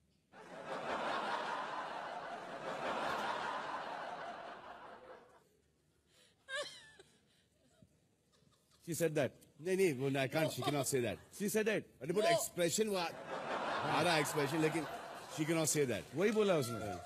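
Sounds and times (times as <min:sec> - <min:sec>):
studio audience laughing: 0:00.4 - 0:05.5, 0:13.1 - 0:17.0.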